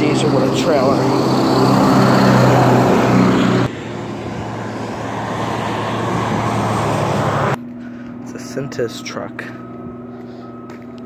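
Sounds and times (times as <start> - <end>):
diesel truck engine passing: 0.0 - 7.6
road noise: 0.0 - 11.0.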